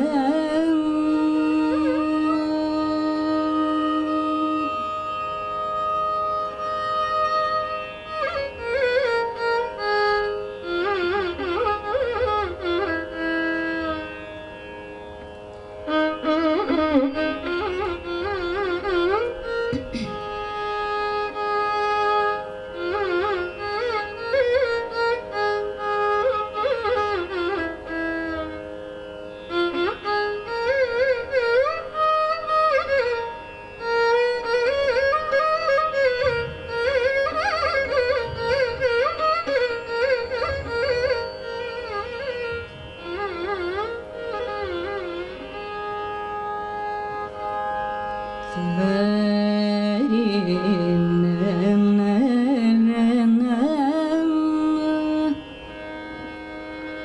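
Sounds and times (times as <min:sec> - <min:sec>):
woman singing: 0:00.0 - 0:04.8, 0:48.5 - 0:55.4
violin melody: 0:00.0 - 0:57.0.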